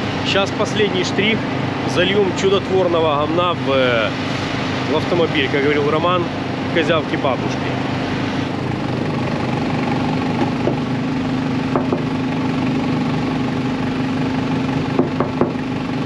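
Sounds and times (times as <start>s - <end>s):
car engine idling: 0.0s - 16.0s.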